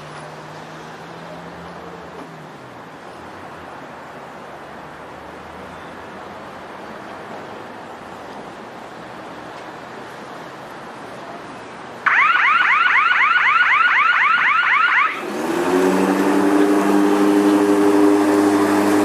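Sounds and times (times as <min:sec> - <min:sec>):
lawnmower motor humming: 0:15.2 - 0:19.0.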